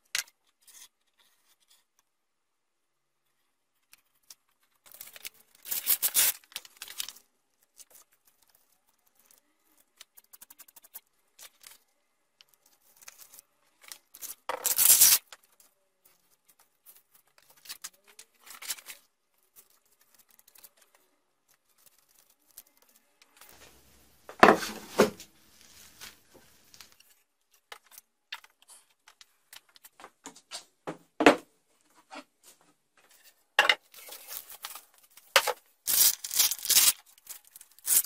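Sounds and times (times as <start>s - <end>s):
velcro strips crackling: 4.8s - 7.2s, 12.8s - 15.6s, 34.0s - 38.0s.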